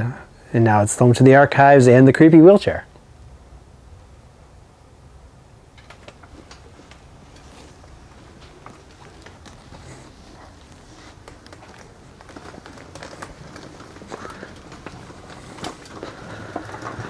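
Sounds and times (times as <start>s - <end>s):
footsteps: 5.8s - 17.0s
wheelchair rattling on hard floor: 5.8s - 17.0s.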